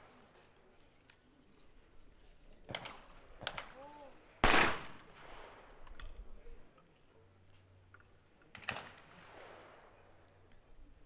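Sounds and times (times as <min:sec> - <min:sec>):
shotgun shot echoing: 0:04.4 - 0:05.6.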